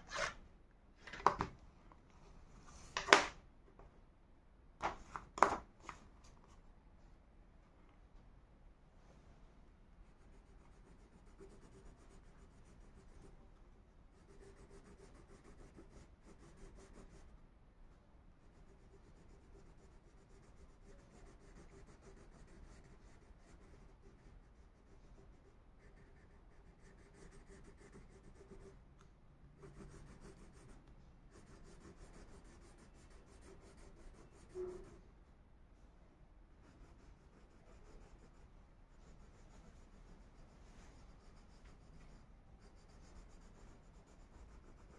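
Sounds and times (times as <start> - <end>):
crayon scratching on paper: 10.0 - 17.3, 18.4 - 28.8, 29.5 - 35.1, 36.6 - 44.9.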